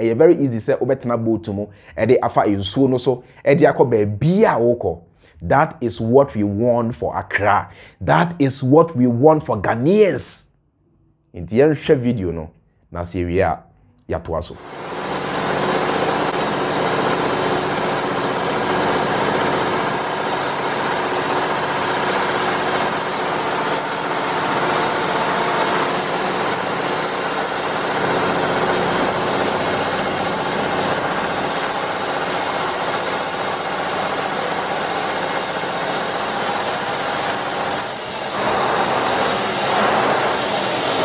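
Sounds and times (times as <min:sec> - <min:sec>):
boat engine droning: 0:14.7 - 0:41.0.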